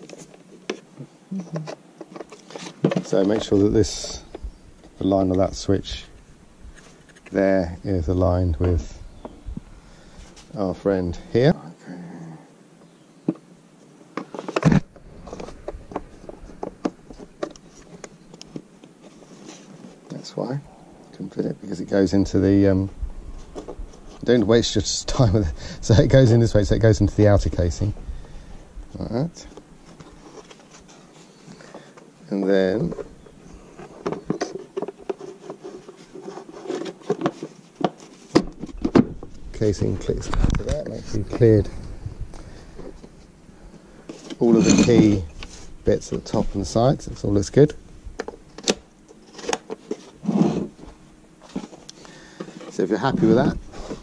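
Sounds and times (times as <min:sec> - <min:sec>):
plastic rubbing and scraping: 0:01.6 - 0:05.4, 0:14.1 - 0:20.2, 0:29.8 - 0:42.0, 0:44.1 - 0:54.0
plastic clatter: 0:33.8 - 0:39.3.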